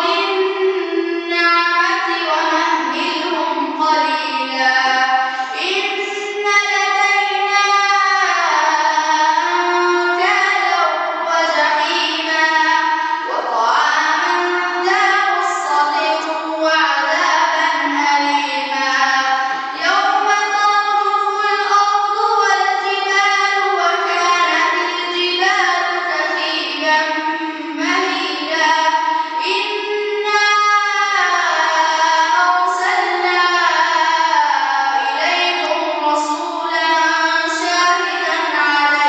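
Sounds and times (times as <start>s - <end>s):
boy chanting melodically: 0.0s - 39.0s
boy breathing: 5.2s - 5.6s.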